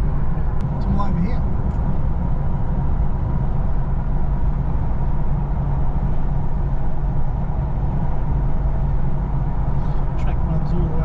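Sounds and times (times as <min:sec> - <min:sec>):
vehicle engine and road rumble: 0:00.0 - 0:11.0.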